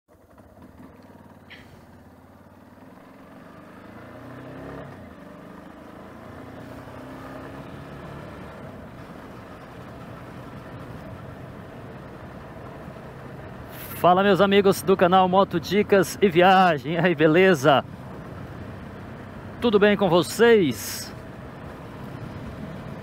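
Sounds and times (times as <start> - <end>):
motorcycle engine accelerating: 0.1 - 16.7.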